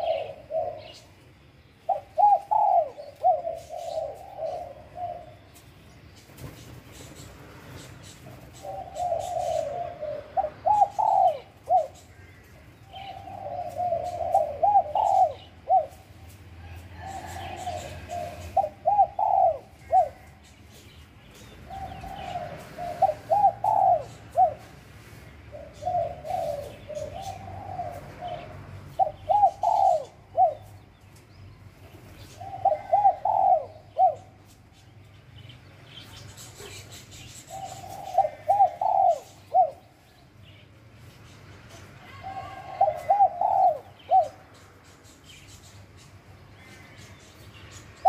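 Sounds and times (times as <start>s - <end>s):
dove cooing: 0.0s - 5.7s, 7.0s - 30.9s, 32.2s - 34.6s, 36.4s - 40.1s, 42.0s - 44.6s.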